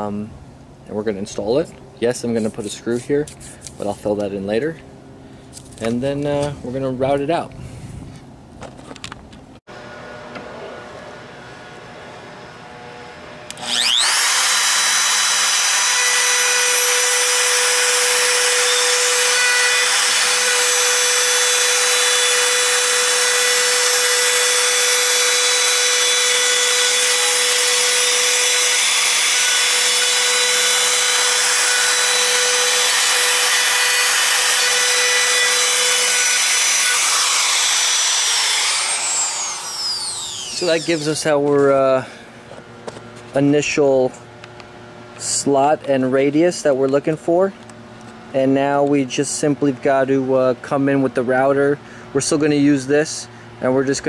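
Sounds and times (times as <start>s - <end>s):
wood router whining: 9.7s - 43.3s.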